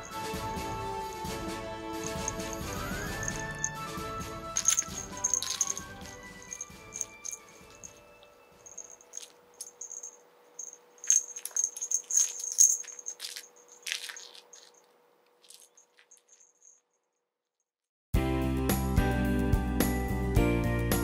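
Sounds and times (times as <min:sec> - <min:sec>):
toy rattling and clicking: 0:02.0 - 0:03.8, 0:04.6 - 0:16.7.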